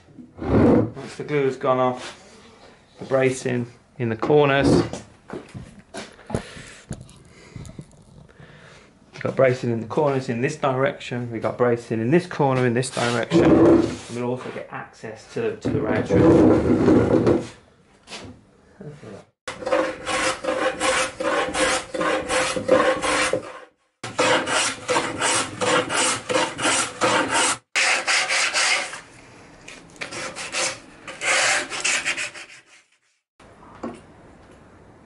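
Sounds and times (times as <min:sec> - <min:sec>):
rasping on wood: 0:19.5 - 0:29.0, 0:30.1 - 0:32.9.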